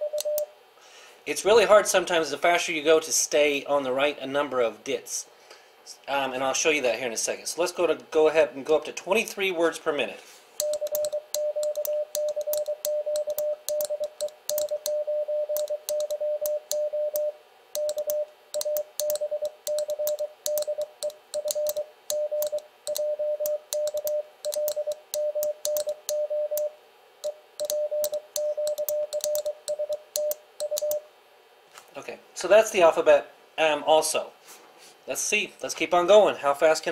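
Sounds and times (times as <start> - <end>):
morse code beeping: 0.0 - 0.5, 10.6 - 31.0.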